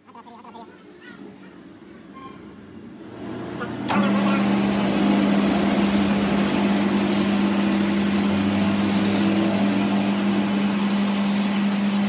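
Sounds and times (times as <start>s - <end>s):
metal lathe humming: 2.7s - 12.0s
emery cloth polishing hiss: 5.1s - 11.6s.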